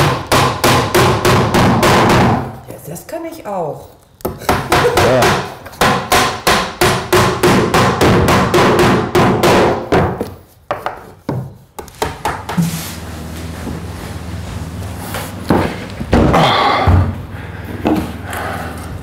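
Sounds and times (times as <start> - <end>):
steady noise: 12.6 - 19.0.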